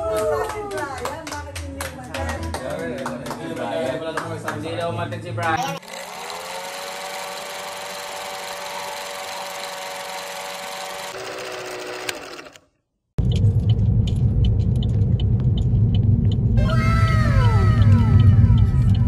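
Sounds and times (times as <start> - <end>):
film projector whirring: 5.6 - 12.6.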